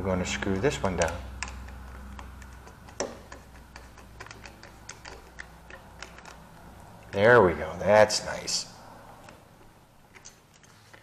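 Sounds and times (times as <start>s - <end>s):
screwdriver tightening screw clicks: 0.9s - 6.4s.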